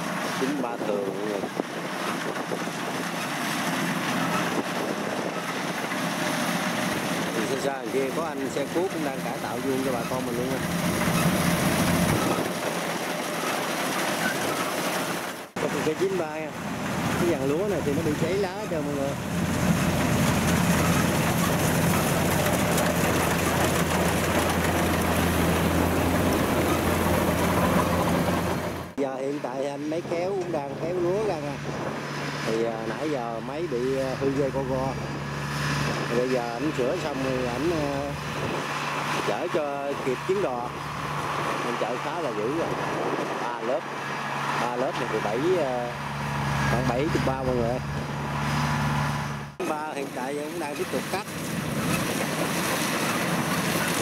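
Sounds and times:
wind buffeting microphone: 0.0 - 14.8, 29.6 - 44.6
combine harvester running: 0.0 - 54.0.

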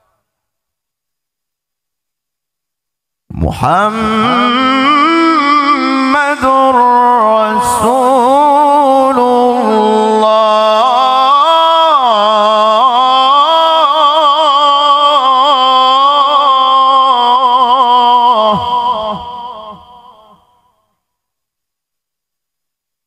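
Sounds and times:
man reciting melodically into microphone: 3.3 - 20.9.

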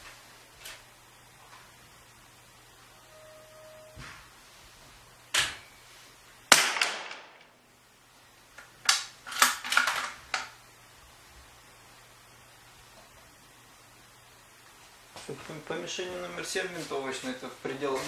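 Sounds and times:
rifle shots echoing indoors: 6.5 - 7.6.

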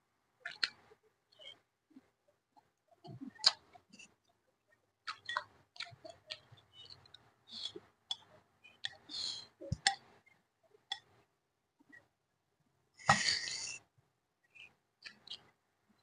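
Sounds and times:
chewing mouth smacks: 0.4 - 1.6.

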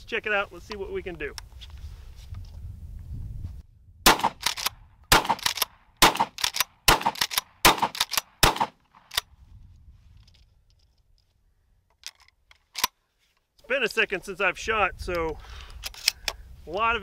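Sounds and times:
shotgun shots: 4.0 - 9.1
faint handling clicks: 15.0 - 16.4.

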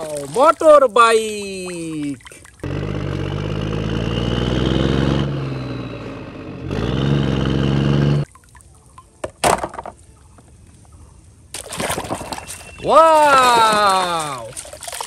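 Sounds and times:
water splashing and knocking: 0.0 - 2.7, 8.3 - 10.0, 11.5 - 15.0
motorcycle engine running: 2.6 - 8.2.

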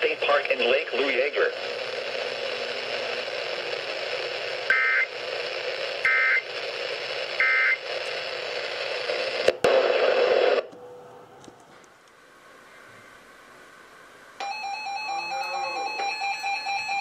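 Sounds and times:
radio hiss: 0.0 - 10.7, 15.2 - 17.0
electronic data-tone bursts: 14.4 - 17.0.

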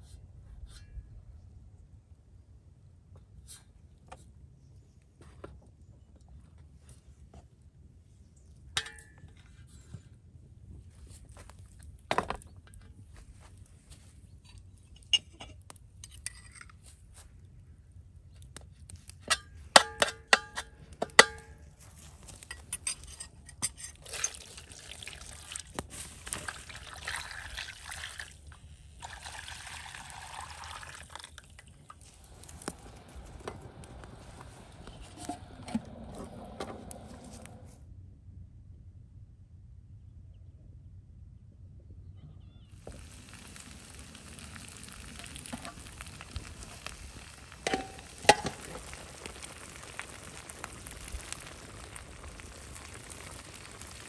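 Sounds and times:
sauce pouring into metal pan: 24.0 - 35.2, 42.8 - 54.0.

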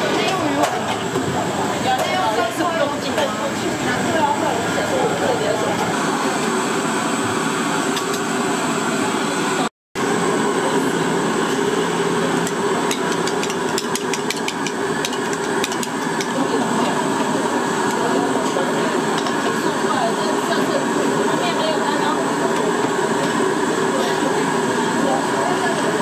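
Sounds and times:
restaurant clatter: 0.0 - 3.5, 12.4 - 19.7.

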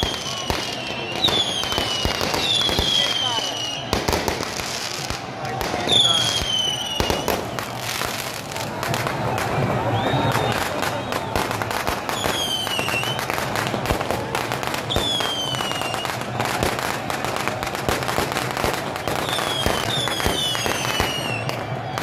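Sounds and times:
firework whistles sliding down: 0.0 - 5.0, 5.8 - 8.4, 9.8 - 13.3, 14.8 - 16.6, 18.8 - 22.0
fireworks crackling and popping: 0.0 - 22.0.

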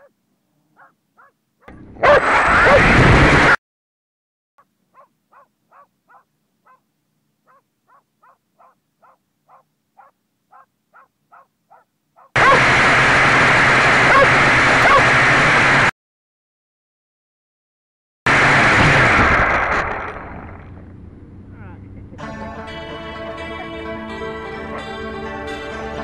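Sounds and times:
small dog yapping: 0.8 - 2.8, 4.9 - 6.8, 7.5 - 12.6, 14.1 - 15.1.

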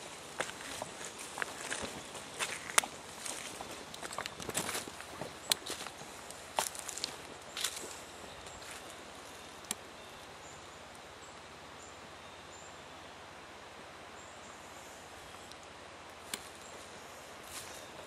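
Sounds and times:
footsteps crunching on leaves: 0.0 - 9.6, 16.4 - 18.0
outdoor hiss: 0.0 - 18.0.

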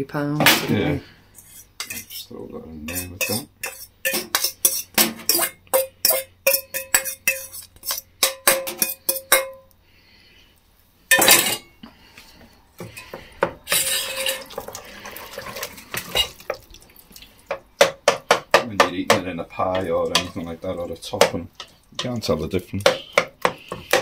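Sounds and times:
wooden spoon scraping pot: 1.3 - 9.5, 12.8 - 16.6, 17.5 - 24.0
spoon clinking on steel bowl: 2.9 - 9.7.

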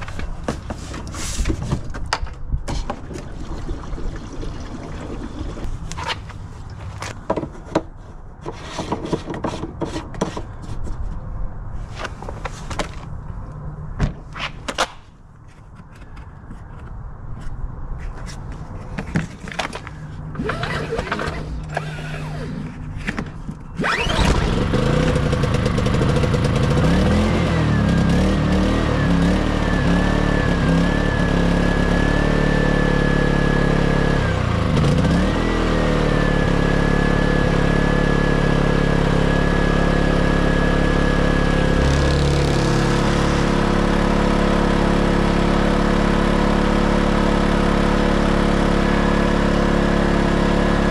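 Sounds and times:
generator engine whine: 19.5 - 50.9
generator pull-start: 19.6 - 26.8.

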